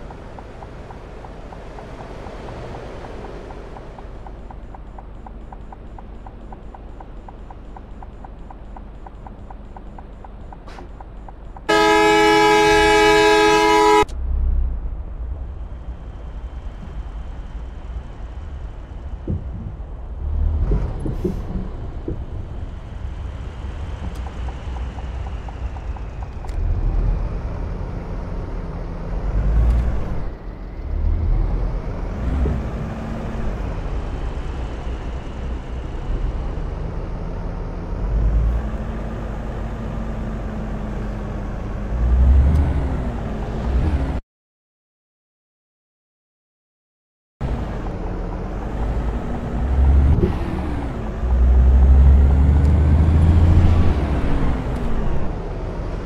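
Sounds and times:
road traffic rumble: 0:00.0 - 0:44.2, 0:47.4 - 0:56.0
vehicle horn blast: 0:11.7 - 0:14.1.

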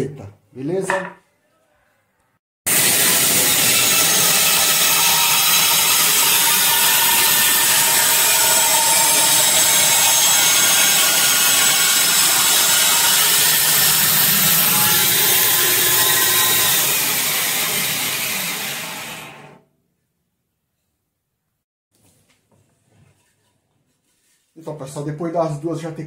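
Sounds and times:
band saw cutting wood: 0:02.7 - 0:19.6.

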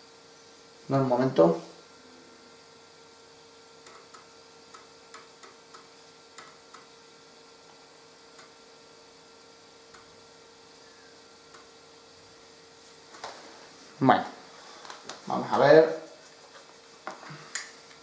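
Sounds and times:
steady low hum: 0:00.0 - 0:18.0
disk drive clicking: 0:03.8 - 0:07.0, 0:07.7 - 0:08.6, 0:09.8 - 0:10.2, 0:11.5 - 0:11.8.

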